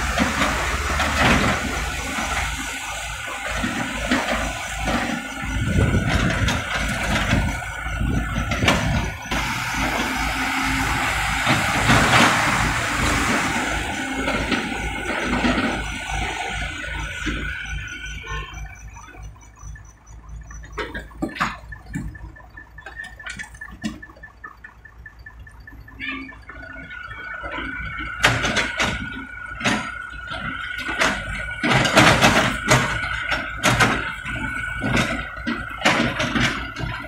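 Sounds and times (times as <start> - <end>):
excavator diesel engine running: 0.0 - 37.0
hydraulic whine: 0.0 - 37.0
rubble clattering into truck bed: 28.2 - 37.0.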